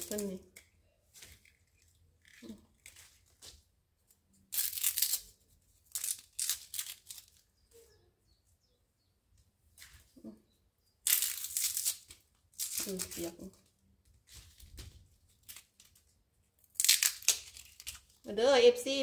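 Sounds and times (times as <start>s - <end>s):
bamboo sheaths tearing: 4.5s - 7.4s, 11.0s - 13.6s, 16.6s - 18.2s.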